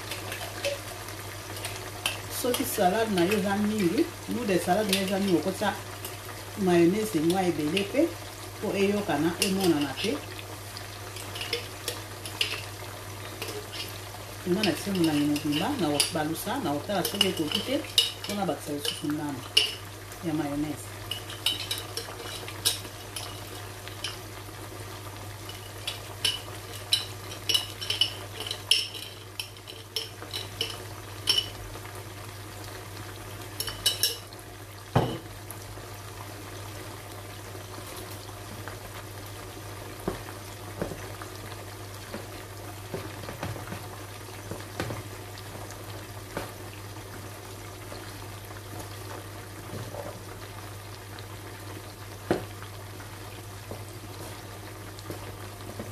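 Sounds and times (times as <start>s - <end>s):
faint frying in pan: 0.0s - 55.9s
stirring pasta in bowl: 11.1s - 12.7s, 13.4s - 19.8s, 21.1s - 24.2s, 25.4s - 31.5s.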